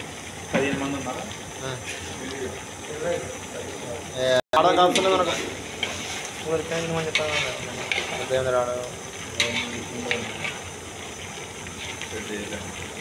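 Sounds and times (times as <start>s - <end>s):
food sizzling: 0.0s - 13.0s
ladle stirring curry in pot: 5.0s - 8.5s.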